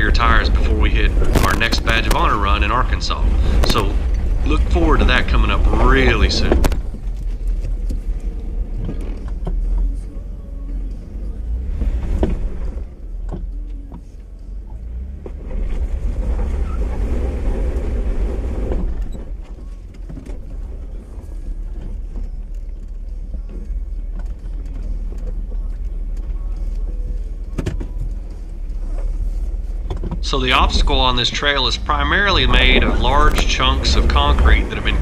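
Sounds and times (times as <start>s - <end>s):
tires knocking on rock: 0.0s - 9.8s
car engine at low revs: 0.0s - 35.0s.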